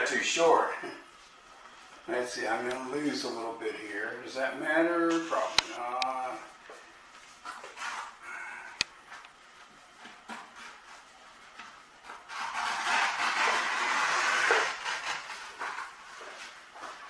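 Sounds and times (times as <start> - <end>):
scissors cutting canvas: 12.0 - 15.8.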